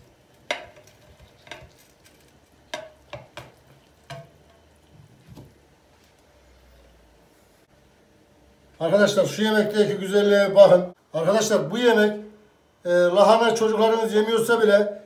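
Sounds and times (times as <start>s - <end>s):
frying pan clinking against plate: 0.5s - 1.8s, 2.7s - 4.7s.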